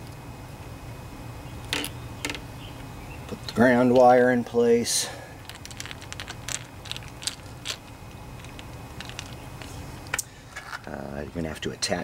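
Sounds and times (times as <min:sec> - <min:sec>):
small clicks and ticks: 0:05.4 - 0:10.3.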